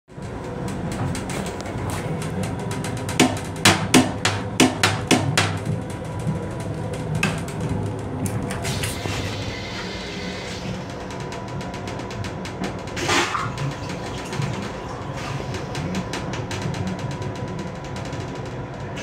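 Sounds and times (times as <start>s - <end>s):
railcar low rumble: 0.1s - 19.0s
toilet lid knocking: 3.2s - 5.6s.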